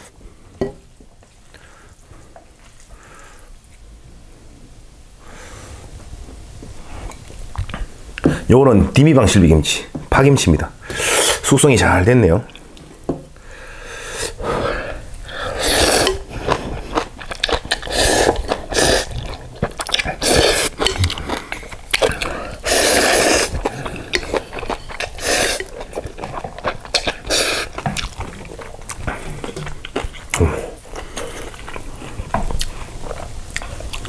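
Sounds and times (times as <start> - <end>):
loud noodle slurping: 14.1 - 31.9
person chewing: 14.2 - 34.0.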